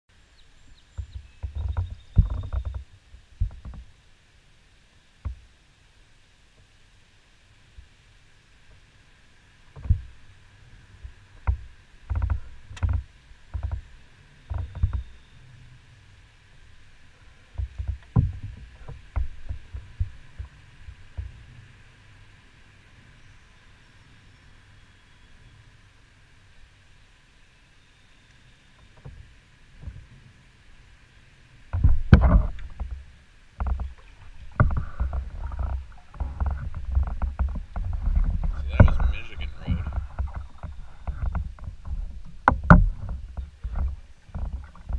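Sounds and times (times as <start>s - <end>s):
paddle splashing water: 8.5s - 21.8s, 31.6s - 44.9s
water swishing: 31.1s - 44.9s.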